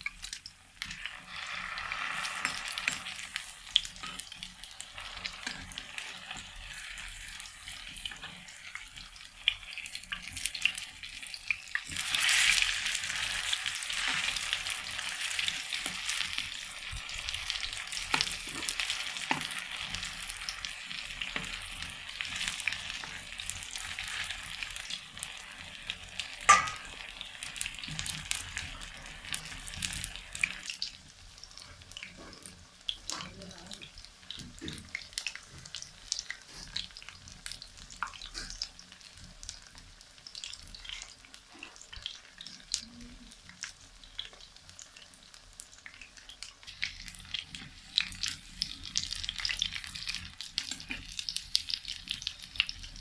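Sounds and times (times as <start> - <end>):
eggplant slices sizzling in oil: 0.0 - 53.0
metal clink on pan: 26.5 - 26.9.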